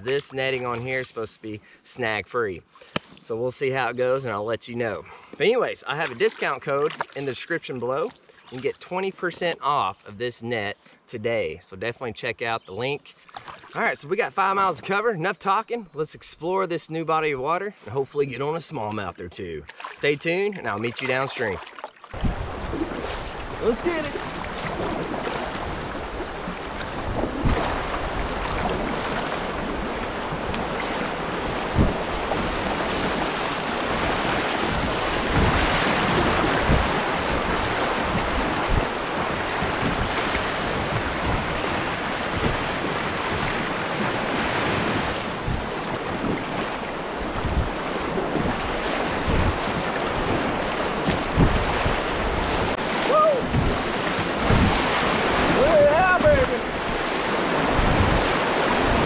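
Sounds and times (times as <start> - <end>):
wind buffeting microphone: 22.1 - 59.0
whitewater rushing: 22.2 - 59.0
low thumps: 24.3 - 33.2, 53.4 - 55.0.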